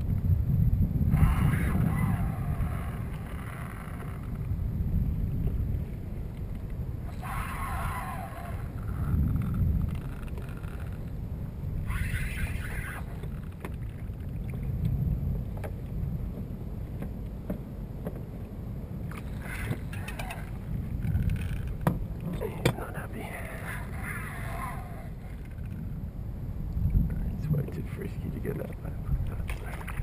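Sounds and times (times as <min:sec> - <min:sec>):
water lapping around kayak: 0:00.0 - 0:26.1, 0:28.5 - 0:30.0
wind rumbling on microphone: 0:00.0 - 0:30.0.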